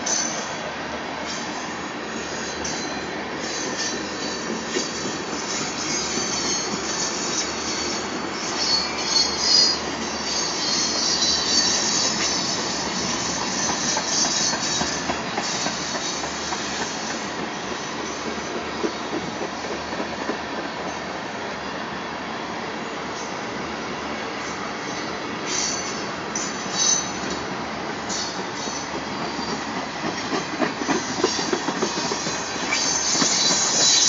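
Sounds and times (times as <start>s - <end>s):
train wheels rumbling on rails: 0.0s - 34.0s
high-pitched wheel squeal: 1.9s - 17.2s, 30.8s - 34.0s.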